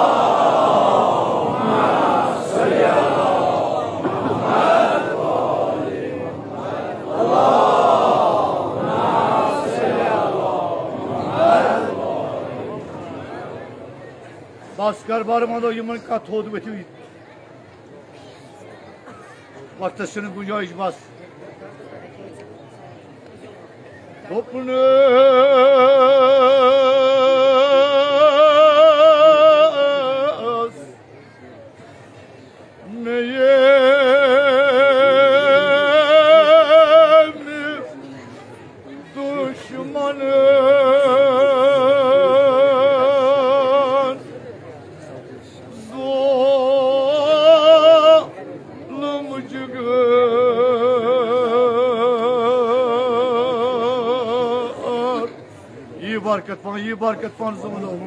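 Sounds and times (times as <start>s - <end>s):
man chanting with vibrato: 39.0s - 44.3s.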